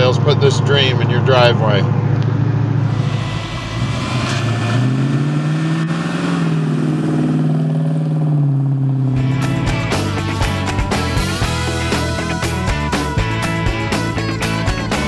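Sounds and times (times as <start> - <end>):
car engine accelerating past: 2.1 - 10.2
music: 9.2 - 15.0.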